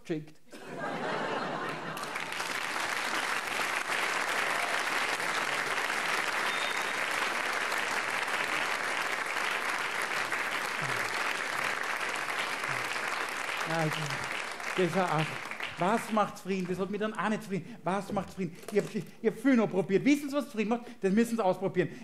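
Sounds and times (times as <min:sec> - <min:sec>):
audience applauding: 0:01.0 - 0:17.0.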